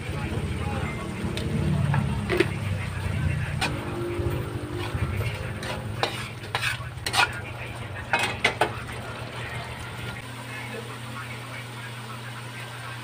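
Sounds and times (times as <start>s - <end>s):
paste simmering: 1.3s - 10.2s
metal spatula scraping a wok: 3.1s - 10.2s.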